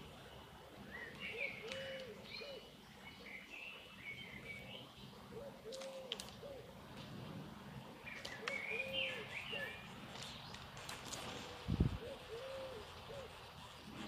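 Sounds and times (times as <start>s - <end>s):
songbirds chirping: 0.0s - 14.0s
dove cooing: 1.3s - 2.7s, 5.2s - 6.8s, 8.3s - 9.8s, 11.7s - 14.0s.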